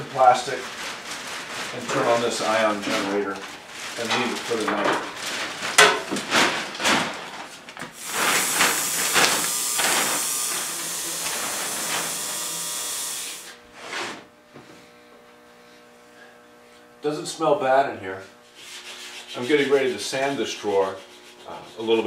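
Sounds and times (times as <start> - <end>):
plastic sheeting rustling: 0.0 - 12.4
steady hiss: 7.9 - 13.6.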